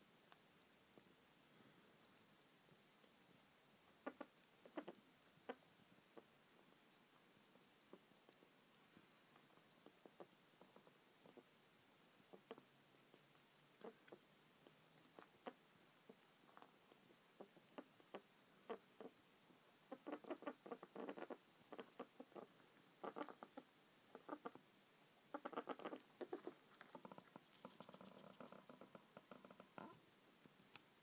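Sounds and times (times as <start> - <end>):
rat nibbling food: 0.0 - 31.0
rat rooting through litter: 0.0 - 31.0.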